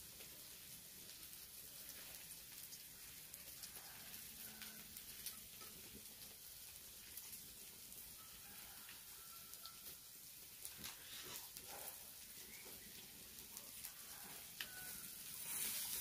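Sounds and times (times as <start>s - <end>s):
campfire crackling: 0.0s - 16.0s
outdoor background hiss: 0.0s - 16.0s.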